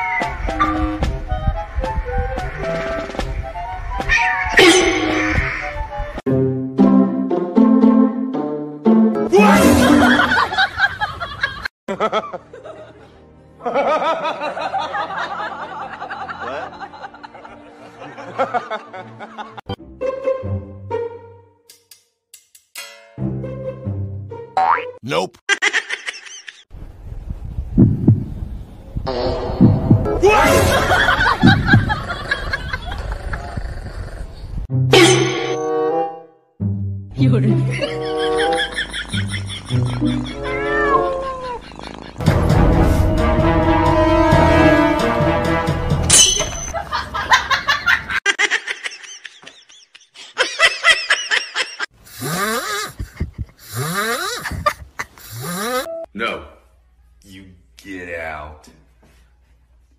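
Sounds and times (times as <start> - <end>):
person laughing: 9.4 - 12.4, 30.5 - 33.6, 37.5 - 42.3, 46.8 - 55.9
heartbeat thumps: 27.4 - 28.5, 29.5 - 30.1, 31.4 - 32.1, 53.0 - 53.6
high-pitched giggling: 37.7 - 42.2, 48.3 - 55.9.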